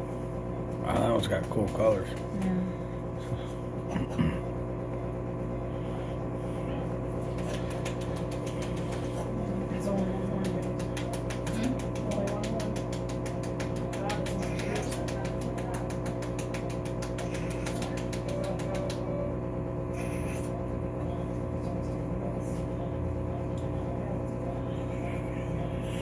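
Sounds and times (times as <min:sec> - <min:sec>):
equipment hum: 0:00.0 - 0:26.0
fast even clicking: 0:10.3 - 0:19.1.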